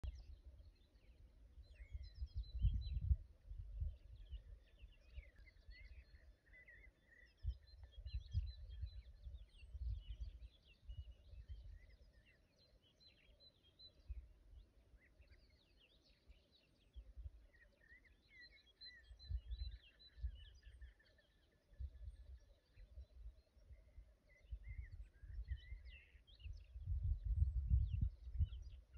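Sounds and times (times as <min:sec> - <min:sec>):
songbird chirps and trills: 0:00.0 - 0:28.9
low rumbles on microphone: 0:01.8 - 0:04.6, 0:07.5 - 0:11.8, 0:24.5 - 0:28.9.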